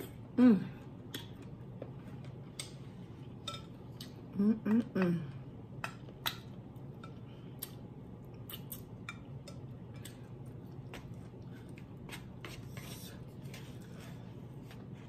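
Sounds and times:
low steady hum: 0.0s - 15.0s
wet chewing clicks and smacks: 7.6s - 9.0s.

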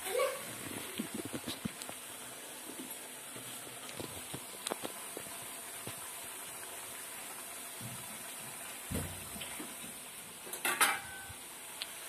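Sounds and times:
food sizzling in hot oil: 0.0s - 12.0s
metal dishes clattering: 10.5s - 11.3s.

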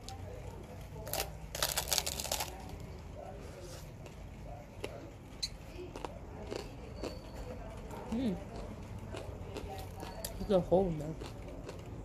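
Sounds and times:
crunching bite into tortilla: 1.0s - 2.7s.

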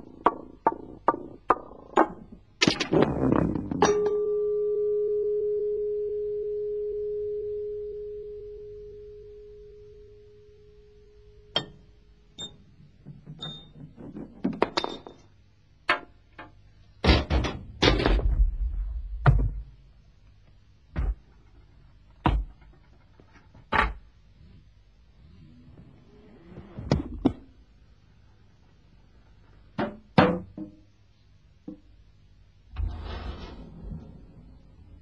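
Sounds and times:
metallic ringing tone: 3.8s - 12.5s.

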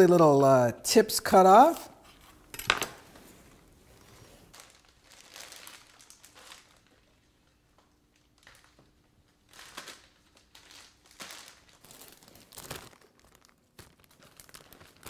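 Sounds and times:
plastic bags crinkling: 4.1s - 15.0s.

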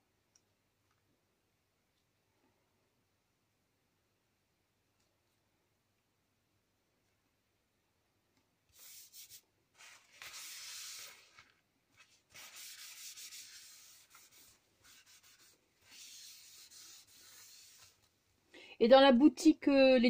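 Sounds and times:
pad rubbing on paper: 8.8s - 18.0s.

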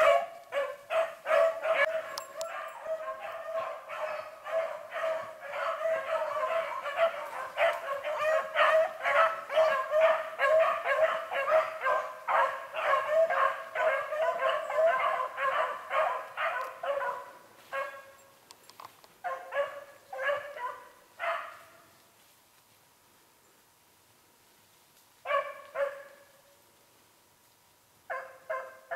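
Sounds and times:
dogs baying: 0.0s - 18.1s.

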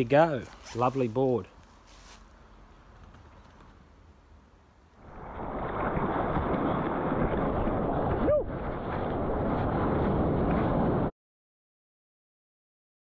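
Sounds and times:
rushing water: 5.0s - 8.8s
wind buffeting camera: 5.0s - 11.1s.

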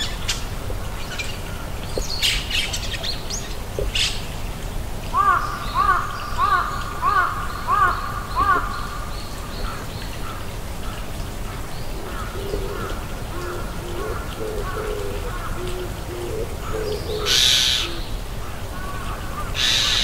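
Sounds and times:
higher bird call: 12.1s - 18.1s
bird hooting: 12.3s - 18.0s.

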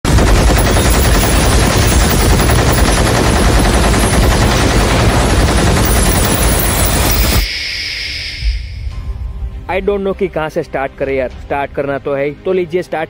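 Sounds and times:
machine gun firing: 0.1s - 7.4s.

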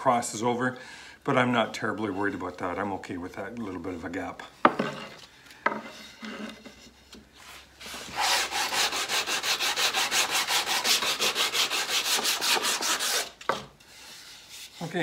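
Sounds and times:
sandpaper rubbing wood: 7.4s - 13.4s.

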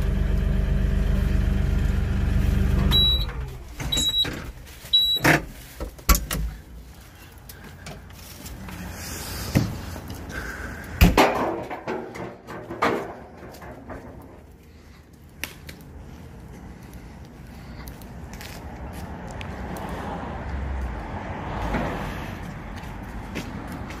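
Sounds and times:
tractor diesel engine running: 0.0s - 10.9s
short beeps: 2.9s - 5.3s.

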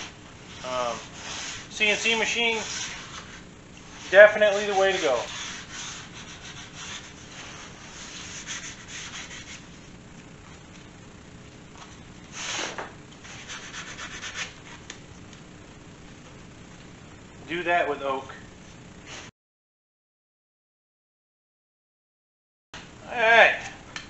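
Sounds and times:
sandpaper rubbing on wood: 0.0s - 9.6s, 12.3s - 14.6s.

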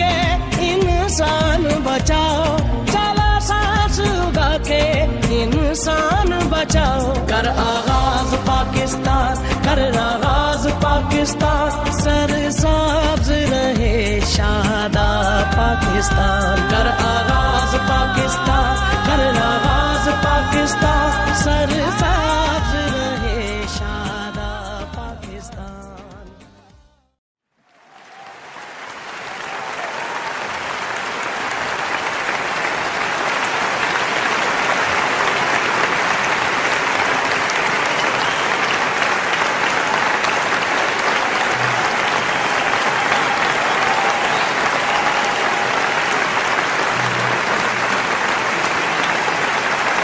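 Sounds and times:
crowd applause: 27.6s - 50.0s.

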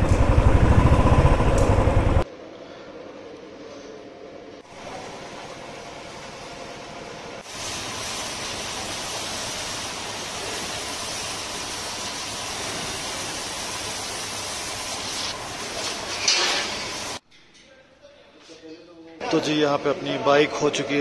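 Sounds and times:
pressure washer water jet hissing: 7.3s - 17.2s.

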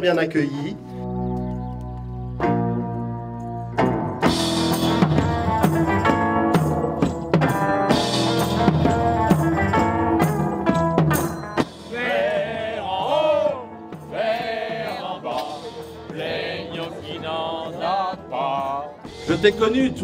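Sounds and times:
drum kit and tambourine beat: 3.2s - 20.0s
voices singing a wavering melody: 11.8s - 19.5s.

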